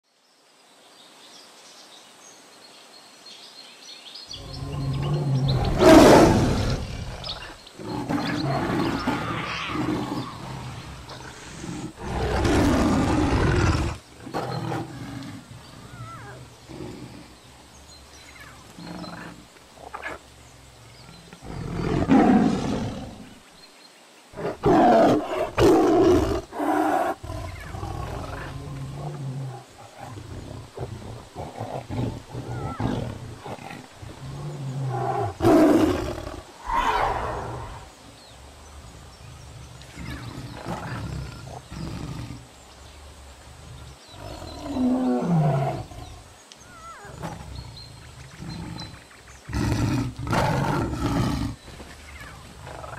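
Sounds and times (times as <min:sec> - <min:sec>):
big cats roaring: 0:04.4 - 0:17.5, 0:20.8 - 0:23.4, 0:24.4 - 0:38.1, 0:38.9 - 0:42.5, 0:43.4 - 0:51.6
low growls and rumbles: 0:04.4 - 0:18.0.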